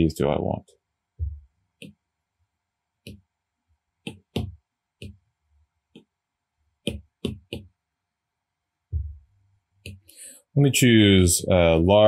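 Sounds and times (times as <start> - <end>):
stylus tapping on glass screen: 3.0 - 3.2, 4.0 - 5.2, 6.8 - 7.8, 9.0 - 10.1.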